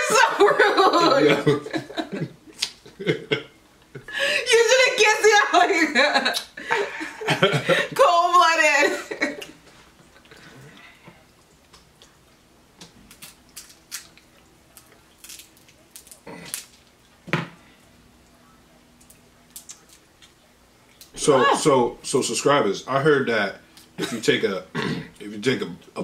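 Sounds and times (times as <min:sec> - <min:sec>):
crab shells cracking by hand: 0:12.8 - 0:17.0, 0:19.0 - 0:20.4.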